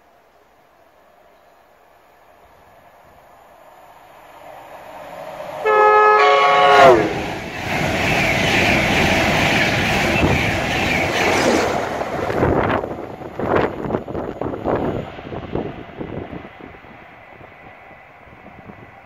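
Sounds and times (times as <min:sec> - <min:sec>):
train coaches rushing past: 0:02.2 - 0:19.0
train two-note horn: 0:05.6 - 0:07.3.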